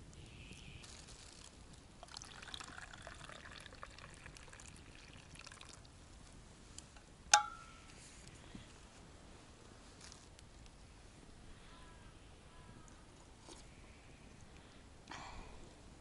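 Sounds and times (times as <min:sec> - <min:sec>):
liquid pouring into metal cup: 0:02.0 - 0:05.9.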